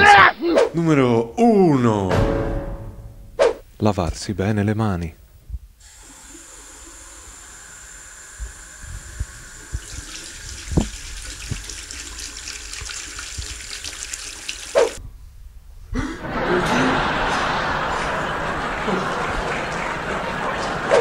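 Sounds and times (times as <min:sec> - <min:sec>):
tap water running into sink: 0:05.9 - 0:15.0.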